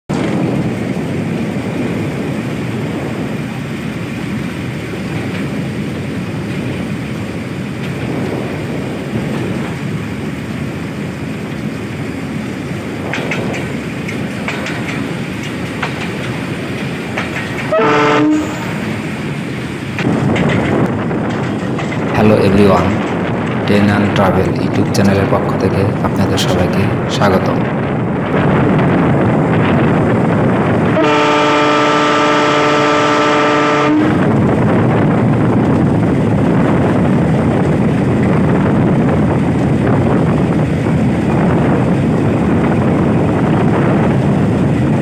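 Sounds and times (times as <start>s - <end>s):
wind: 0.0s - 45.0s
train wheels rumbling on rails: 0.1s - 45.0s
train horn blast: 17.7s - 19.0s, 30.9s - 34.3s.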